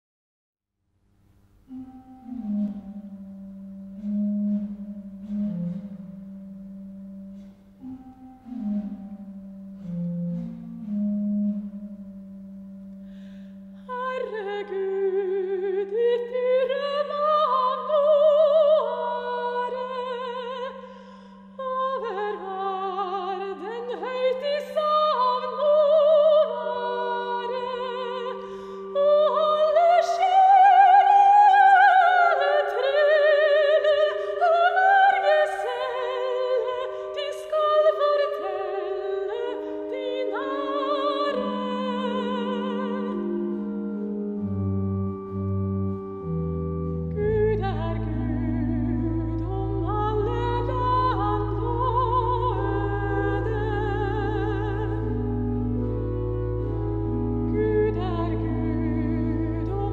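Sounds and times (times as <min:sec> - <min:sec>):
church organ: 0:01.4 - 0:59.9
soprano singing a hymn: 0:13.7 - 0:45.6, 0:47.1 - 0:59.9.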